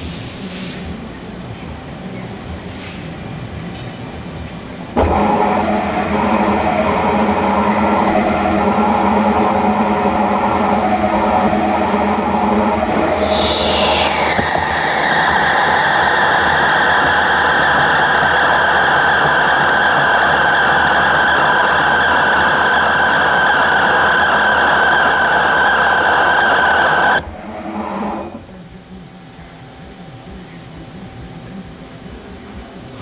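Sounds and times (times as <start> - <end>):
quiet machine hum: 3.3 - 33.0
lathe tool squealing: 5.0 - 19.7.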